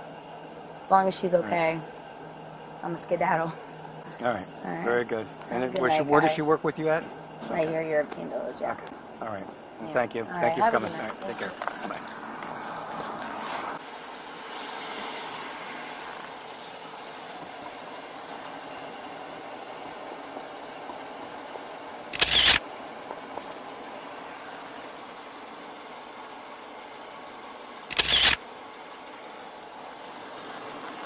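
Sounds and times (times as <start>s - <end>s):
night insects trilling: 0.0s - 31.0s
loud bursts of noise: 22.2s - 22.6s.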